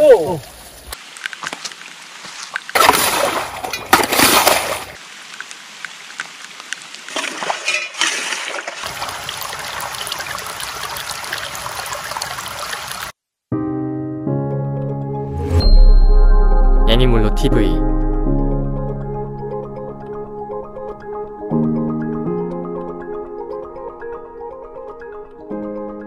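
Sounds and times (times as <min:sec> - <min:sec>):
muddy water trickling and splashing: 0:00.0 - 0:13.2.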